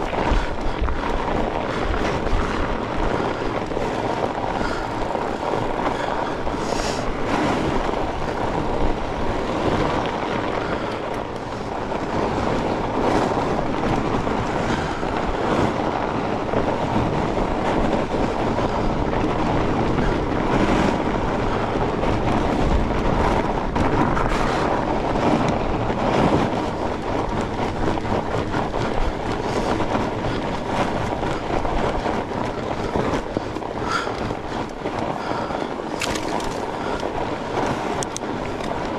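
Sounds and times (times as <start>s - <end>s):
bike knocks and rattles: 0.0s - 38.9s
bike tyres rumbling on trail: 0.0s - 38.9s
wind buffeting microphone: 0.0s - 38.9s.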